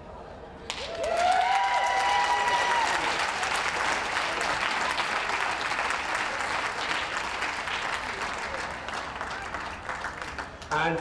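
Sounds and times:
crowd applauding: 0:00.7 - 0:11.0
voices cheering: 0:00.8 - 0:03.6.

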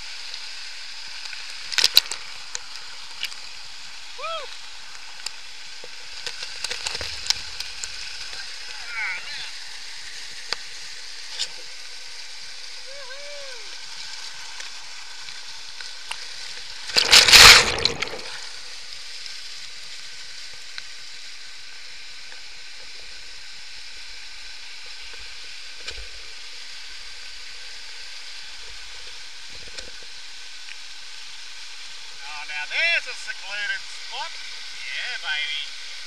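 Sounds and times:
waterfall rushing over rock: 0:00.0 - 0:36.0
water splashing: 0:01.0 - 0:20.5.

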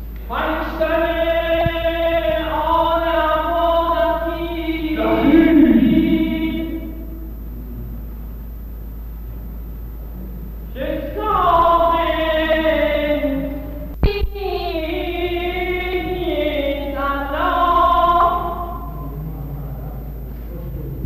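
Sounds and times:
person chanting long notes: 0:04.9 - 0:08.1.

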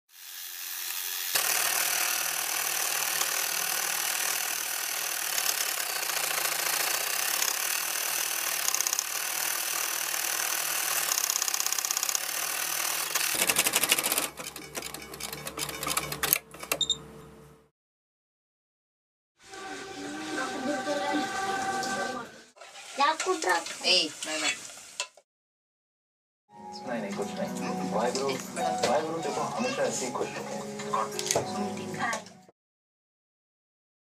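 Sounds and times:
sewing machine stitching: 0:01.3 - 0:16.9.

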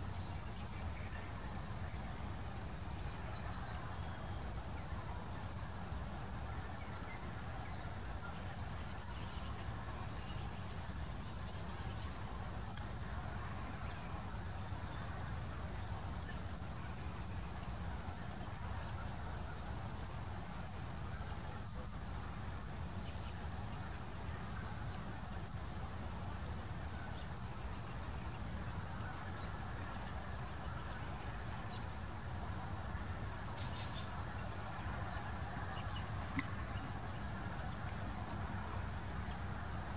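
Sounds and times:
faint hiss: 0:00.0 - 0:39.9
faint high ticks: 0:36.3 - 0:36.6.

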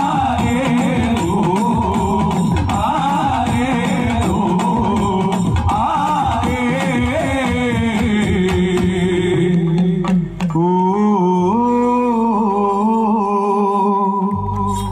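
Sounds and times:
stick-beaten barrel drums: 0:00.0 - 0:10.8
man singing: 0:00.0 - 0:14.9.

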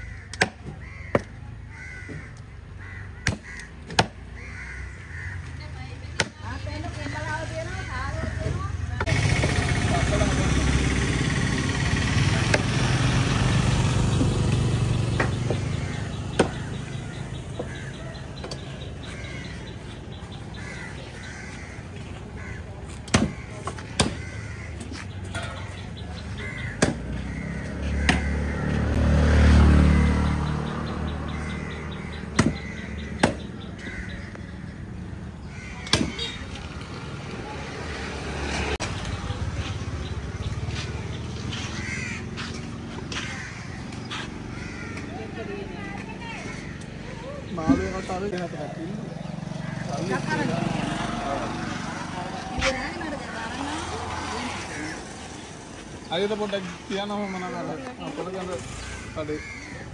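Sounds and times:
crows cawing: 0:00.0 - 0:06.4, 0:15.8 - 0:30.3, 0:30.9 - 0:36.4, 0:41.4 - 0:59.9.

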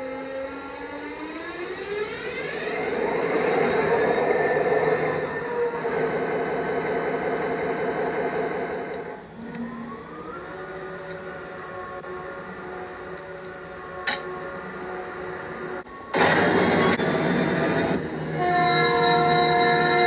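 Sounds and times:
locomotive engine revving: 0:02.4 - 0:12.2, 0:16.1 - 0:20.0.

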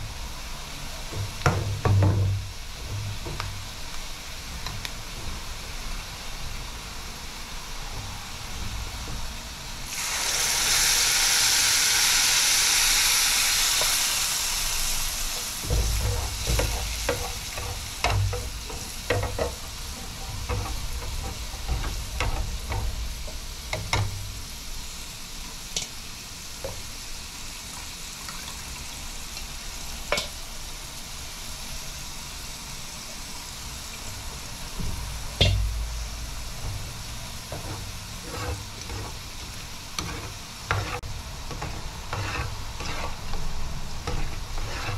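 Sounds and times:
pan sizzling loudly: 0:00.0 - 0:44.9
metal spoon scraping pan: 0:15.6 - 0:24.1, 0:37.5 - 0:44.9.

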